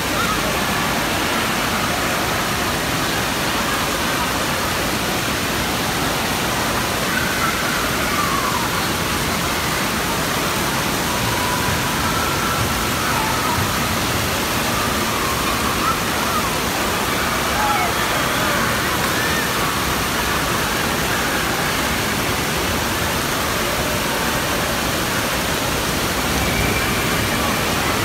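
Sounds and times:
water rushing from sprays: 0.0 - 28.0
distant children's voices: 6.3 - 24.0.

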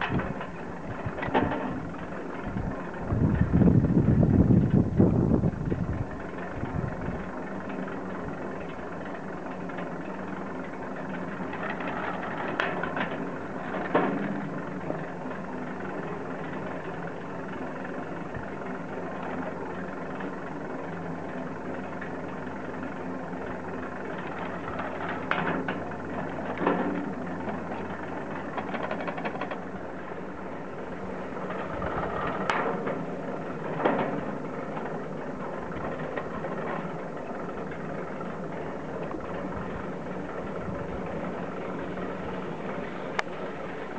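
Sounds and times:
rattling clacks of tow hangers: 0.0 - 2.1, 8.6 - 15.0, 24.2 - 30.2, 31.3 - 37.0
ski lift mechanical hum: 0.0 - 43.9.

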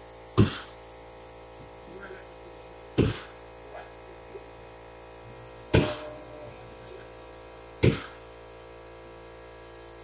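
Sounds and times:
electrical hum: 0.0 - 10.0
sharp knocks of hard objects: 0.4 - 0.7, 3.0 - 3.4, 5.7 - 6.2, 7.8 - 8.2.

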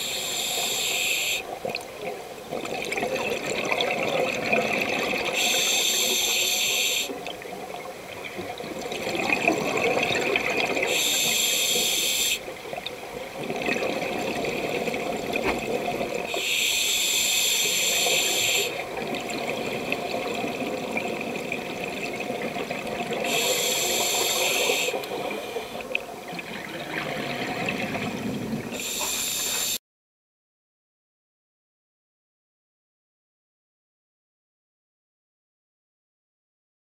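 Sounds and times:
breathing through a regulator: 0.0 - 1.6, 5.2 - 7.3, 10.8 - 12.6, 16.3 - 20.1, 23.2 - 26.0, 28.7 - 29.8.

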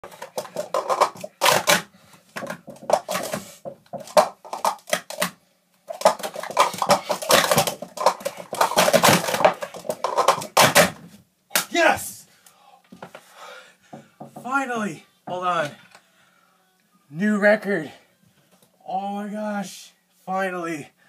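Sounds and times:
plastic cups clattering: 0.0 - 11.0.

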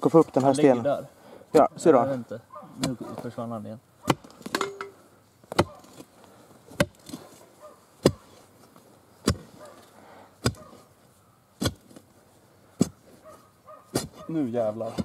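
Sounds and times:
digging bar striking stony earth: 2.8 - 3.3, 4.0 - 6.1, 6.7 - 7.4, 8.0 - 8.5, 9.2 - 9.8, 10.4 - 10.9, 11.6 - 12.1, 12.8 - 13.0, 13.9 - 15.0.

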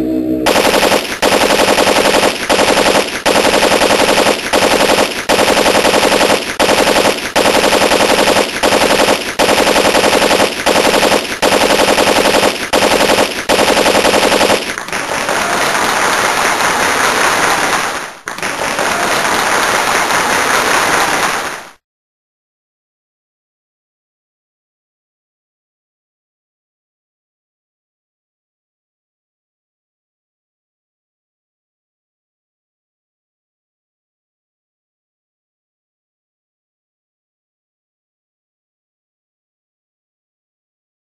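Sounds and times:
machine-gun fire: 0.5 - 21.8.

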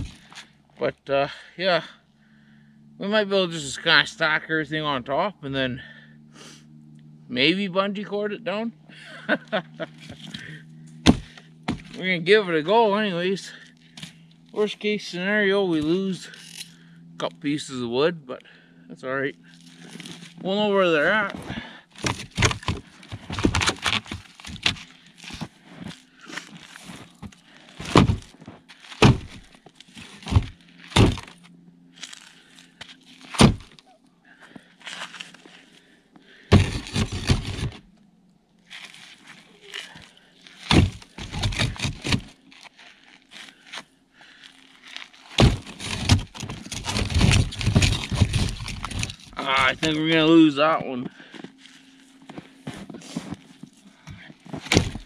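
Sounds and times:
firewood knocking together: 11.0 - 12.0.

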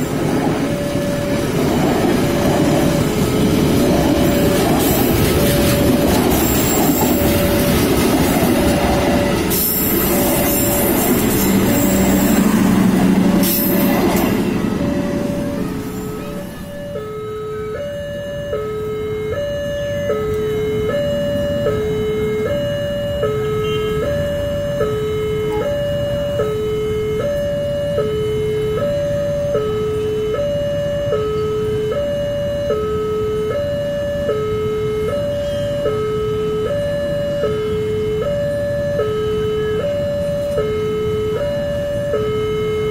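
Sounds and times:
two-tone level-crossing alarm: 0.0 - 42.9.

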